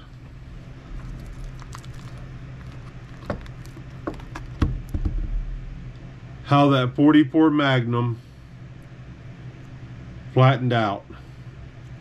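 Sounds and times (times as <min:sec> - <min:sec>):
foil crinkling and rustling: 0:00.9 - 0:04.6
dull knocks: 0:03.2 - 0:05.4.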